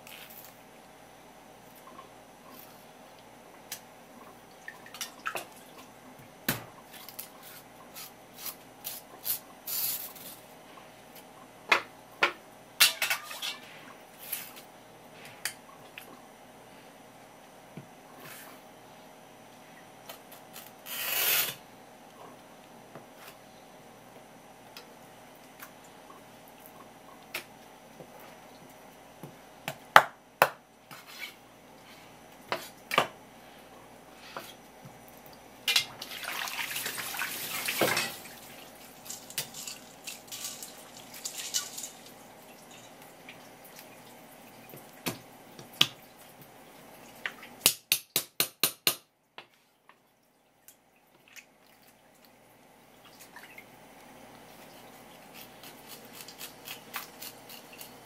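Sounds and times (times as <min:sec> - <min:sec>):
faint steady hum: 0:00.0 - 0:58.0
knife scraping on cutting board: 0:30.9 - 0:31.4.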